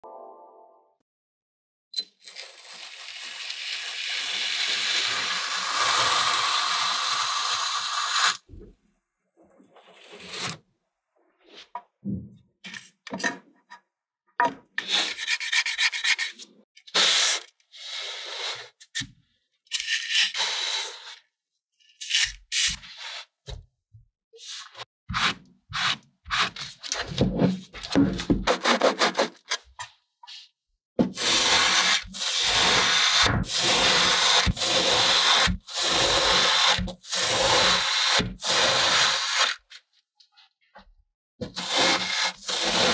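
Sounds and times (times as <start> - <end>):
knife sawing through sand: 31.2 - 39.6, 41.5 - 42.9.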